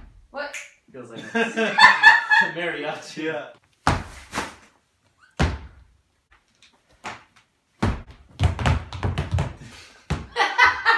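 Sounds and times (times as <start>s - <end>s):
feet stomping on wooden floor: 3.8s - 4.5s, 5.4s - 5.9s, 7.0s - 10.4s.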